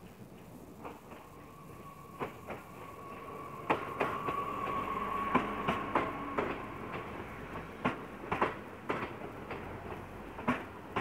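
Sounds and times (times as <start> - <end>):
train wheels clacking over rail joints: 0.0 - 11.0
train whine: 0.0 - 11.0.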